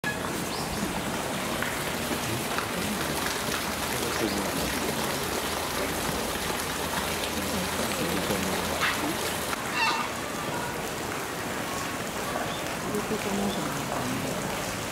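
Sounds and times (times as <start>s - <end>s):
water hissing: 0.4s - 10.2s
faint voices: 2.0s - 14.9s.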